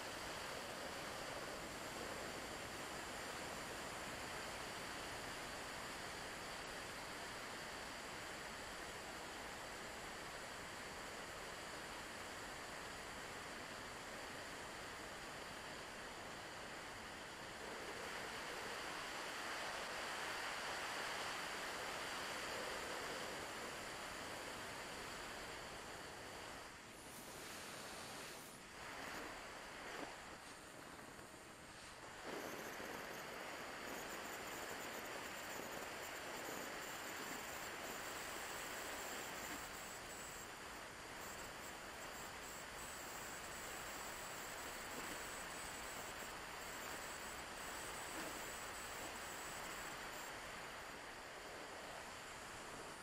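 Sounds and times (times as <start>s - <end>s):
thin high whine: 12.2s - 53.0s.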